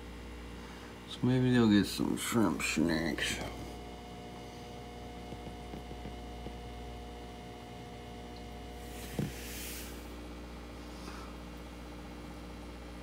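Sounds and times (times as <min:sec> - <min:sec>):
low electrical hum: 0:00.0 - 0:13.0
short hiss: 0:08.8 - 0:10.1.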